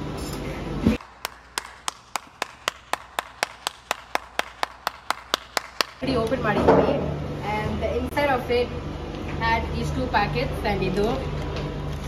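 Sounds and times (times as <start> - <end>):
person clapping: 1.0 - 6.0.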